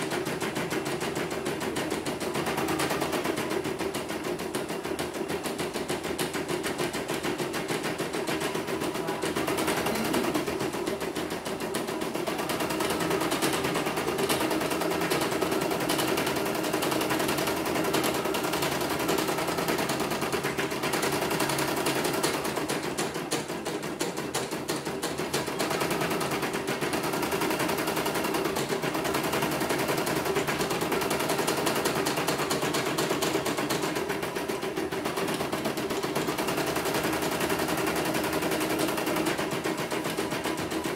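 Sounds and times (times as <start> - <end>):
machine hum: 8.0 - 14.7.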